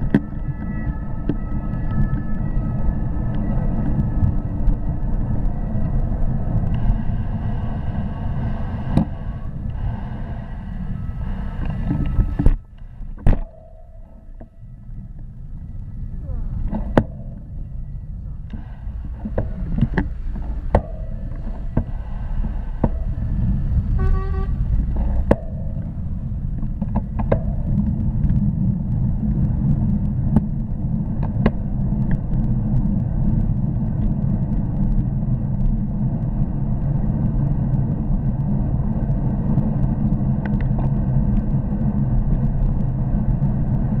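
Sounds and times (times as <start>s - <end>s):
wind rumble on microphone: 0.0s - 44.0s
bike clicks and knocks: 24.9s - 25.9s.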